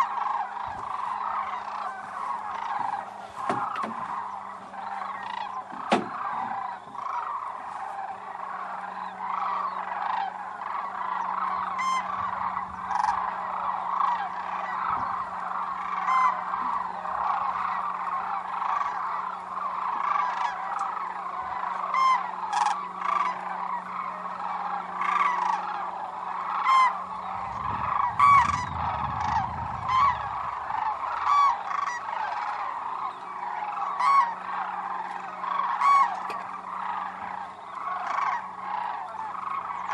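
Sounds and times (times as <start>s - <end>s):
flock of cranes calling: 0.0s - 39.9s
low rumble: 27.1s - 31.3s.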